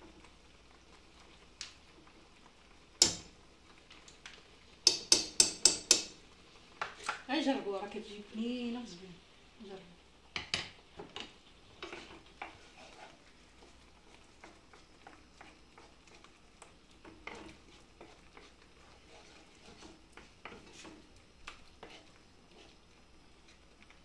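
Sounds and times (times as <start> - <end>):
spatula scraping sauce in pan: 11.0 - 23.6.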